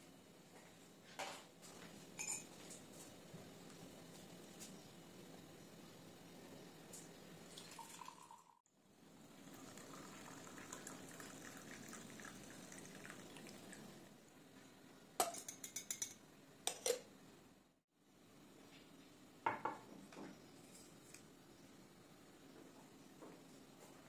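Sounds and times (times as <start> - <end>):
tea pouring into mug: 7.5 - 8.6, 9.4 - 14.1.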